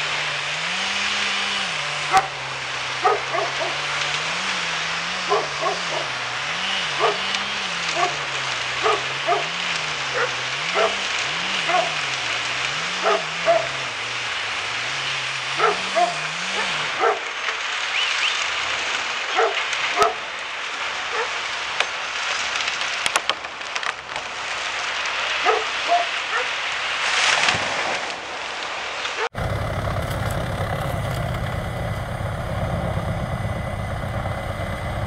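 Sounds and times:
wood chipper roaring: 0.0s - 19.9s, 29.3s - 35.0s.

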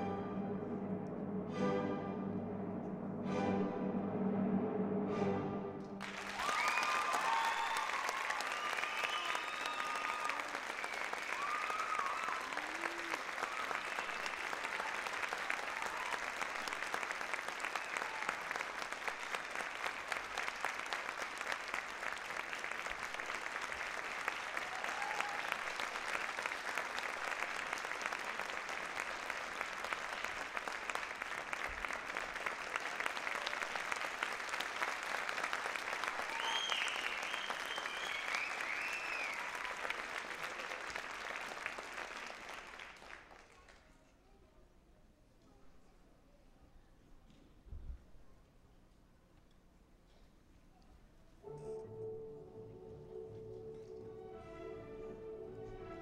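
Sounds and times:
audience applauding: 6.0s - 43.8s.

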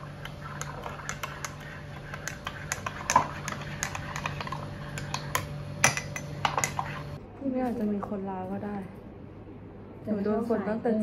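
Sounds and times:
low room hum: 0.0s - 11.0s
spoon clinking in ceramic mug: 0.5s - 7.0s.

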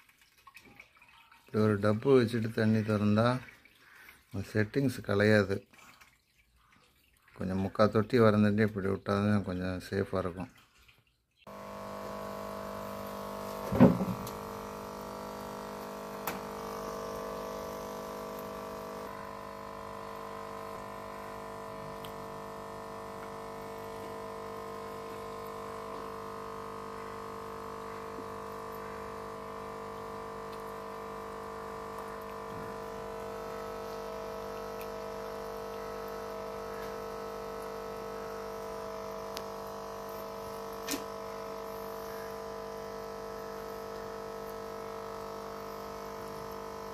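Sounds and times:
electric hum: 11.5s - 46.9s.

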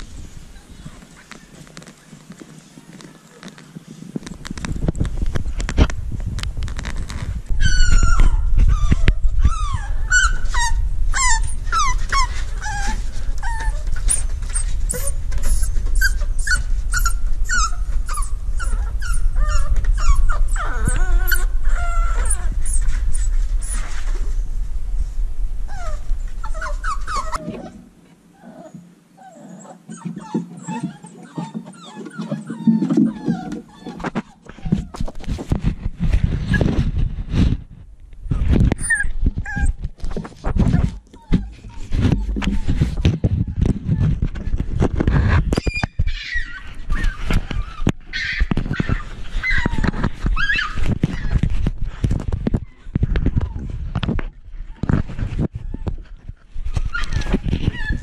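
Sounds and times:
rumbling against microphone: 0.0s - 28.2s, 29.9s - 58.0s
puppies whining and yipping: 7.5s - 24.4s, 25.7s - 27.8s, 28.4s - 35.2s, 38.4s - 44.6s, 45.4s - 51.5s, 54.7s - 58.0s.

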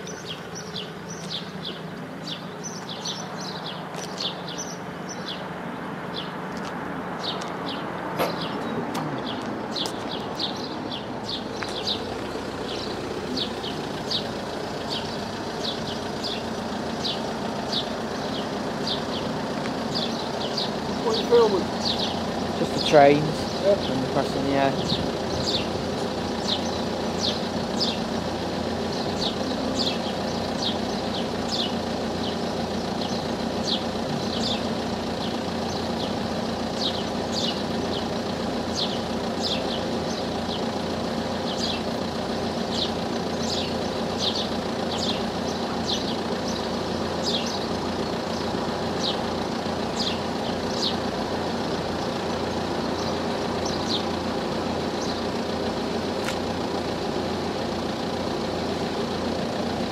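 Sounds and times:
car engines idling: 0.0s - 59.9s
high bird chirps: 7.2s - 19.3s, 19.9s - 24.0s, 24.8s - 36.2s, 36.8s - 40.7s, 41.4s - 41.9s, 42.7s - 49.3s, 49.9s - 51.0s.

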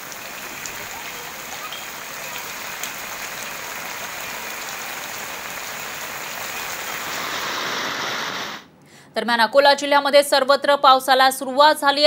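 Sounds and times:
floodwater rushing: 0.0s - 8.6s.

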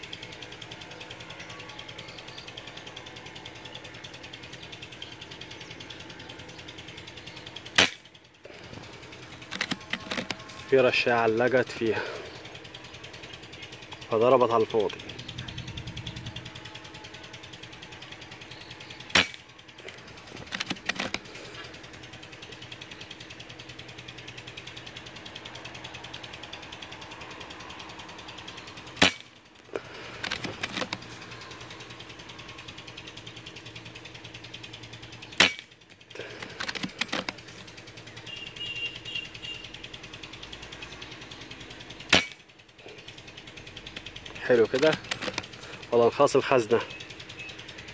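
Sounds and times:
metallic bolt clicks: 9.4s - 10.6s, 19.1s - 21.3s, 30.2s - 31.1s, 36.4s - 37.5s, 44.7s - 45.5s
air rifle shots: 19.1s - 19.4s.

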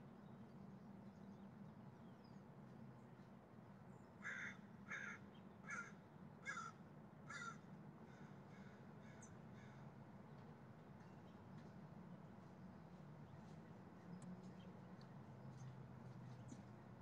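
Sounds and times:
crow cawing: 4.2s - 9.8s.

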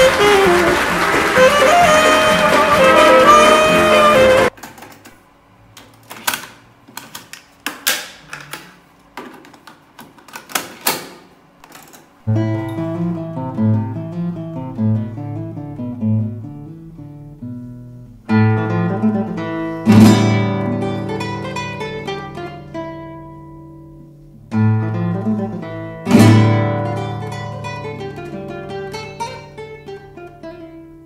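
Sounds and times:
acoustic guitar music: 0.0s - 4.6s, 12.2s - 31.0s.

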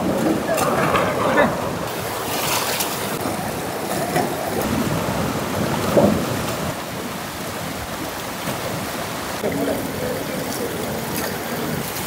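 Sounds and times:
river rushing over rapids: 0.0s - 12.0s.

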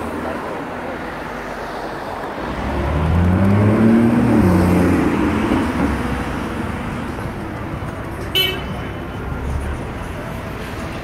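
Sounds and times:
bus engine passing close: 0.0s - 8.2s
street traffic: 0.0s - 11.0s.

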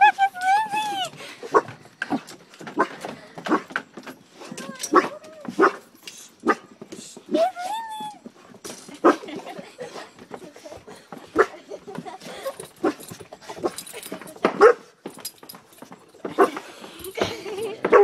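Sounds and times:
dog whining: 0.0s - 1.1s, 7.3s - 8.3s
dog yelping: 0.0s - 1.6s, 4.6s - 5.8s, 7.3s - 8.2s.

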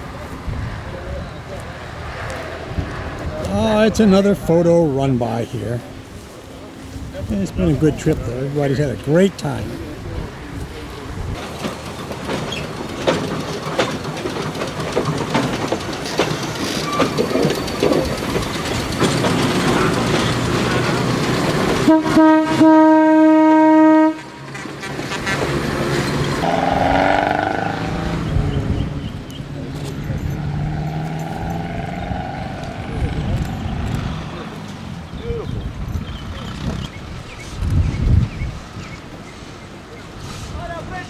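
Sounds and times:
tram wheels clattering over rail joints: 11.3s - 22.9s, 24.2s - 35.0s
tram horn blast: 21.7s - 24.7s, 26.4s - 28.2s.

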